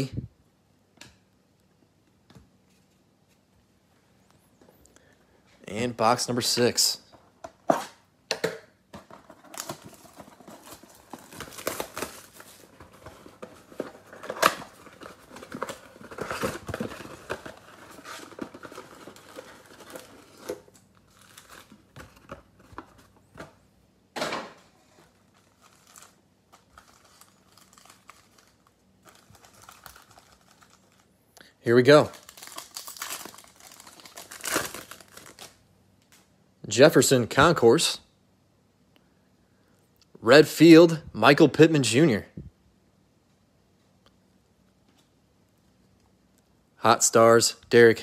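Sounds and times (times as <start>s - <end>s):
box flap opening: 9.0s - 20.6s
foil packs rustling: 9.1s - 23.4s, 24.8s - 31.1s, 31.8s - 35.6s
plastic wrap crinkling and tearing: 9.4s - 23.1s, 24.9s - 31.2s, 31.8s - 35.6s.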